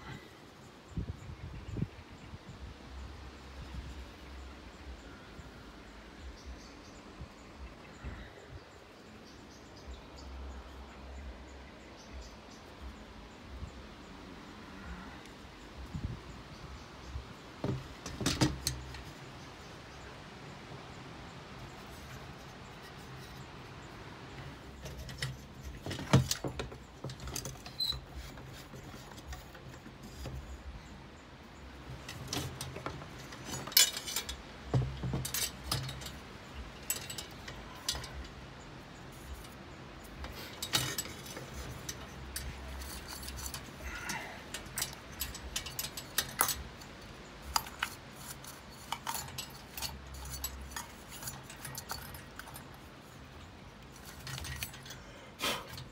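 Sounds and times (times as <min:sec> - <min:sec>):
chandelier metal and glass clinking: 0:39.1 - 0:55.0.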